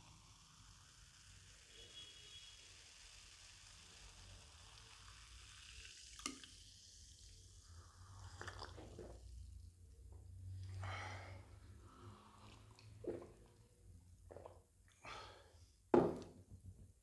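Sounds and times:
soda fizzing in a glass: 0.0s - 9.6s, 11.4s - 13.6s.

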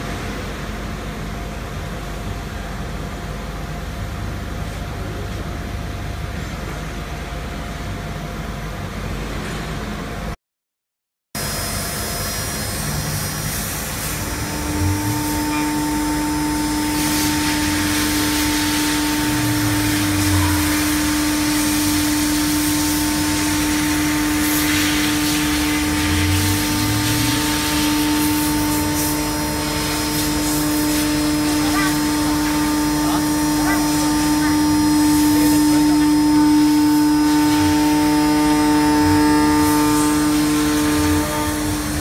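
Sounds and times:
router spindle high whine: 11.4s - 42.0s
short low hums: 11.7s - 42.0s.

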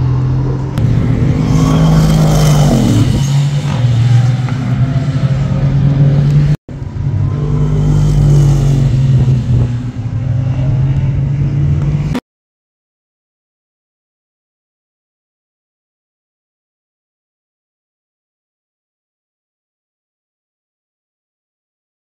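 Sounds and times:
race car engine revving: 0.0s - 12.2s.

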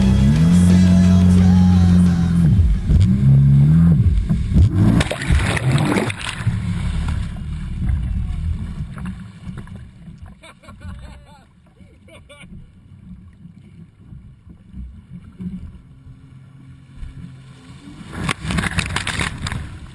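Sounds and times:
jet ski engine running: 0.0s - 10.0s, 12.8s - 19.9s
water splashing and sloshing: 4.0s - 19.9s.

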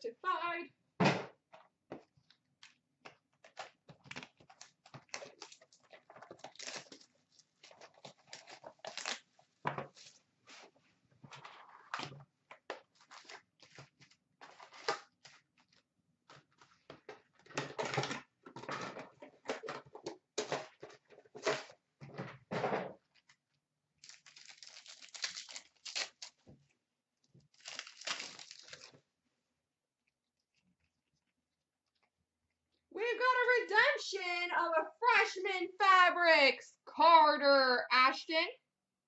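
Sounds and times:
cardboard and wrappers tearing: 3.4s - 10.2s, 12.8s - 15.8s, 24.0s - 26.4s, 27.5s - 29.0s
wrapper rustling: 3.4s - 10.7s, 24.0s - 26.4s, 27.5s - 29.0s.

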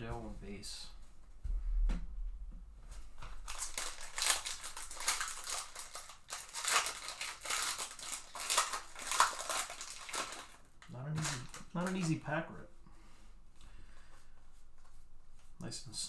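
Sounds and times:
foil wrapper tearing and crinkling: 3.4s - 12.2s.

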